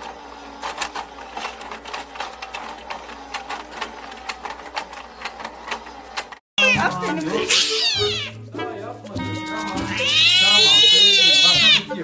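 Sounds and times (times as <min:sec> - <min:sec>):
plastic penguins clattering: 0:00.0 - 0:08.2
toy motor whirring: 0:00.0 - 0:08.4, 0:09.4 - 0:12.0.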